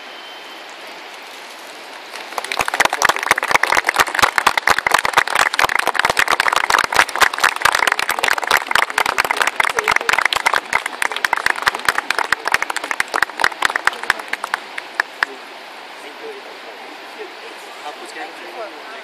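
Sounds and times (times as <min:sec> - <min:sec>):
people applauding: 0:02.2 - 0:15.4.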